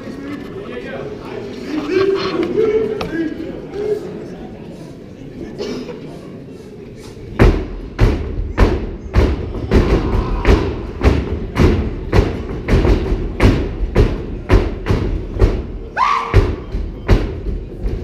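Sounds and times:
stomps on hollow stage: 7.4s - 18.0s.

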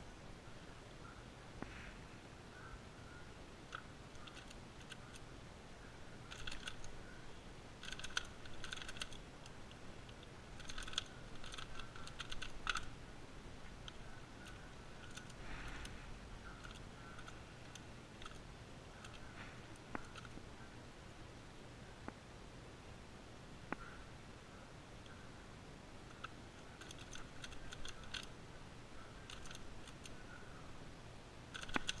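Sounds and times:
plastic puzzle clicking and clacking: 3.7s - 5.2s, 6.3s - 7.0s, 7.8s - 12.9s, 13.8s - 20.4s, 26.1s - 28.4s, 29.2s - 30.2s, 31.5s - 32.0s.

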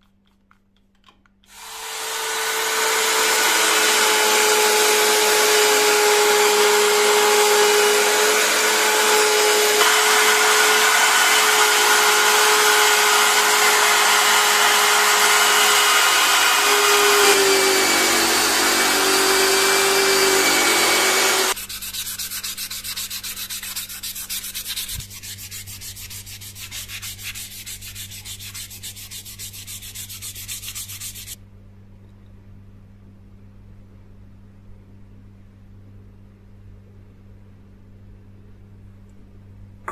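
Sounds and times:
rotary tool motor whine: 1.5s - 21.6s
sanding wood abrasive noise: 1.5s - 31.4s.

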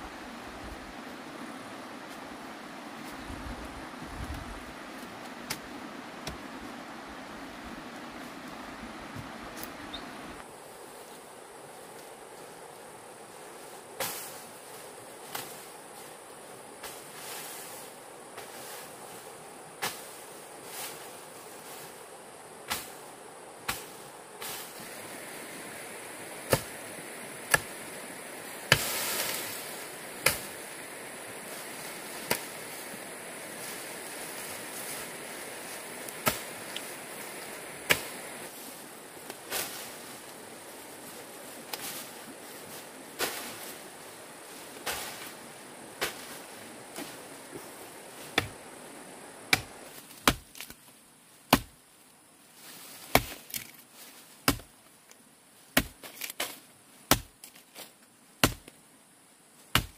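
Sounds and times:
steady high hiss: 0.0s - 59.9s
sharp chopping strikes: 27.5s - 27.8s, 28.7s - 29.4s, 30.2s - 30.5s, 37.9s - 38.2s, 49.5s - 50.6s, 51.5s - 51.8s, 54.5s - 54.7s, 55.8s - 56.0s, 57.1s - 57.4s, 58.4s - 58.7s.

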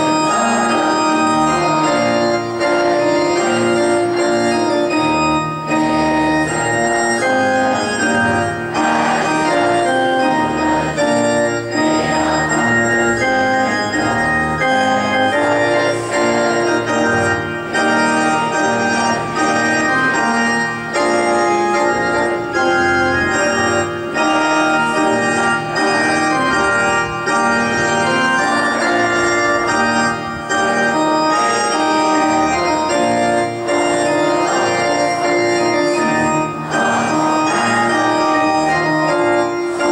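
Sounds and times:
organ playing sustained chords: 0.0s - 39.9s.

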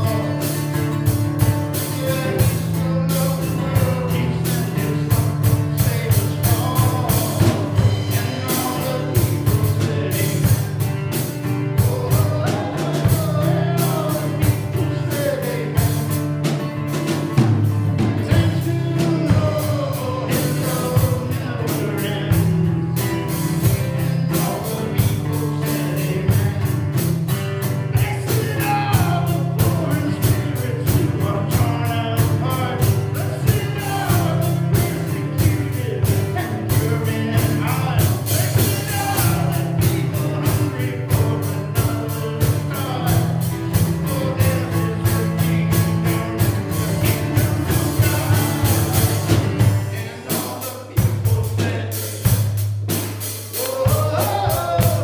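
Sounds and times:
man singing: 0.0s - 52.6s, 53.3s - 55.0s
acoustic guitar strumming: 0.0s - 55.0s
drum kit beat: 0.0s - 55.0s.

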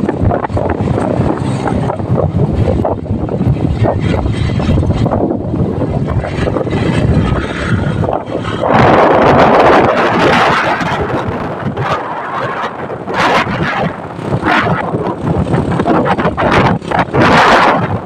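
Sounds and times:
traffic noise: 0.0s - 18.0s
wind rushing over microphone: 0.0s - 18.0s.

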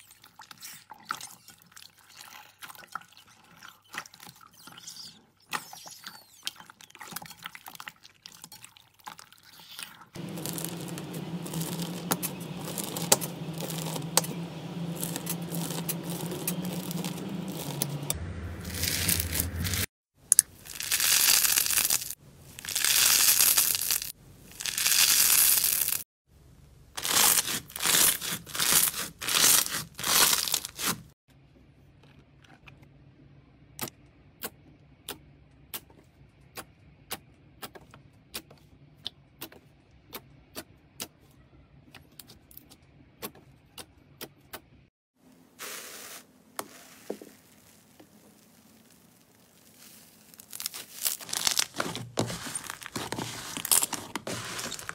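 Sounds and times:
slime crackling and tearing: 10.2s - 26.0s, 27.0s - 31.1s, 47.4s - 54.9s.

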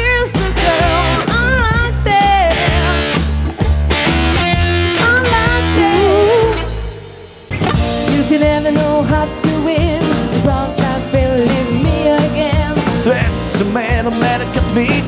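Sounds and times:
women singing lead: 0.0s - 3.2s, 5.0s - 6.8s, 8.1s - 13.0s
live band playing: 0.0s - 15.0s.

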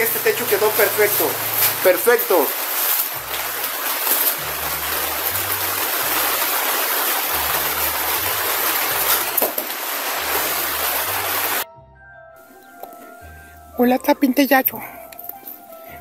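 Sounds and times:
heavy rain on a plastic tarp: 0.0s - 11.6s.

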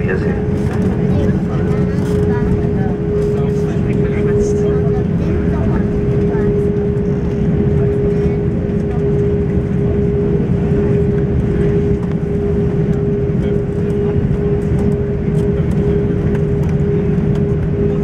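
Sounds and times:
low rumble of jet engines: 0.0s - 18.0s
mid-pitched hum: 0.0s - 18.0s.

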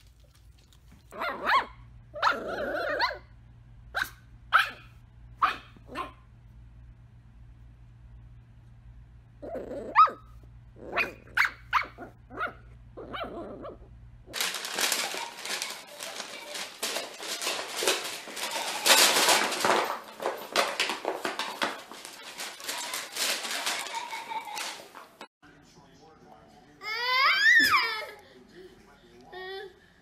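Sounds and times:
dog barking and yipping: 1.1s - 3.3s, 4.0s - 6.2s, 9.6s - 13.8s
paper and cardboard ripping: 14.4s - 25.0s.

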